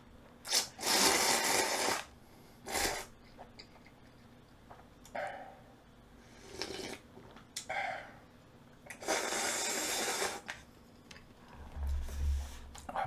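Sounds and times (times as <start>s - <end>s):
person slurping broth: 0.5s - 3.1s, 6.4s - 7.0s, 8.9s - 10.5s.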